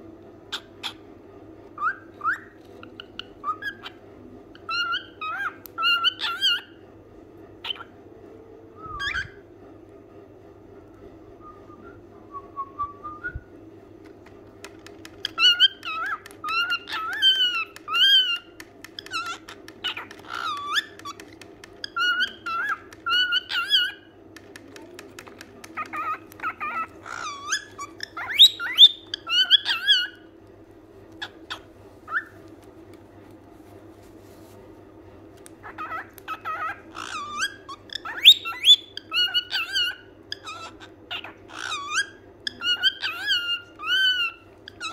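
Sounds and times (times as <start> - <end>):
cockatiel whistling: 1.8 - 4.0, 8.8 - 9.4, 15.2 - 21.2, 21.8 - 24.1, 25.8 - 30.2, 35.7 - 44.9.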